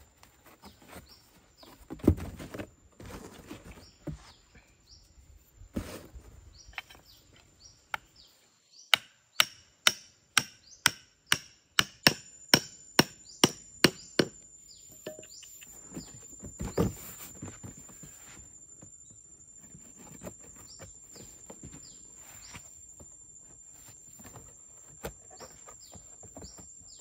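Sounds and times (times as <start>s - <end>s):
hammer striking wooden stake: 8.9s - 14.4s, 15.0s - 15.5s.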